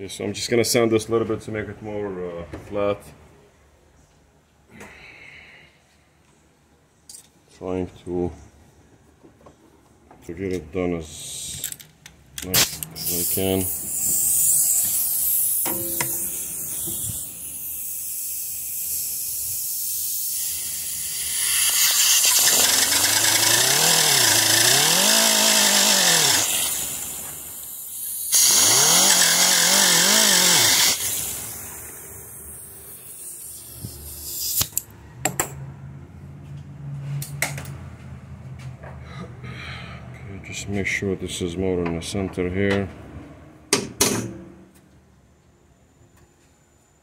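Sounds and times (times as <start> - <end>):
power tool sanding steel: 20.4 - 31.8.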